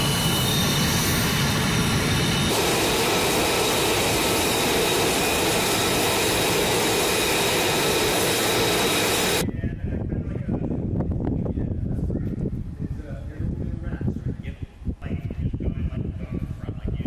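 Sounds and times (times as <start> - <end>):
jet engine loud rushing: 0.0 - 9.4
jet turbine whine: 0.0 - 9.5.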